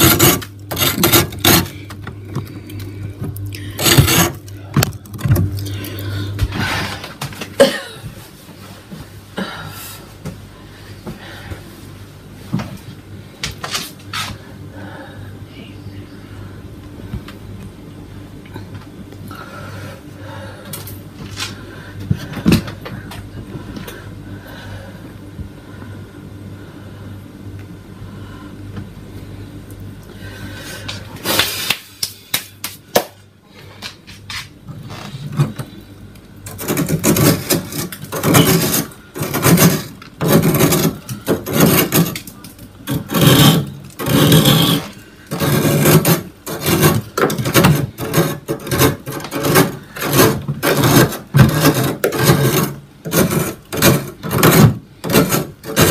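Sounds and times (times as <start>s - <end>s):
steady low hum: 0.0s - 55.9s
fingers scraping frost: 42.9s - 47.1s.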